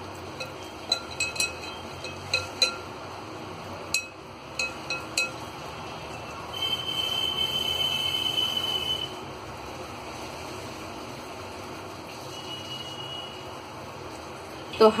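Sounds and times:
glass bowl clinking: 0.4 - 3.0, 3.9 - 6.8.

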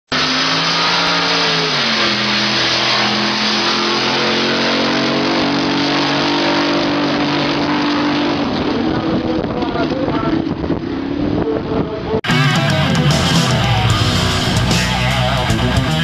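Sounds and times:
racing boat engine at high revs: 0.1 - 12.1.

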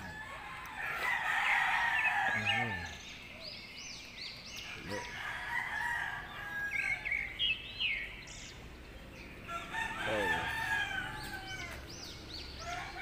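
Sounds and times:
rooster crowing: 0.0 - 3.0, 4.8 - 7.2, 9.5 - 12.0
small birds chirping: 0.0 - 13.0.

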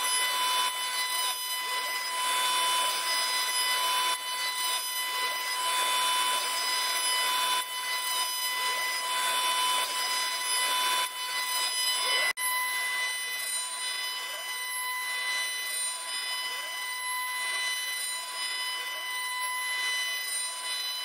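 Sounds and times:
wood cutting rushing noise: 0.0 - 14.6
router spindle whine: 0.0 - 21.0.

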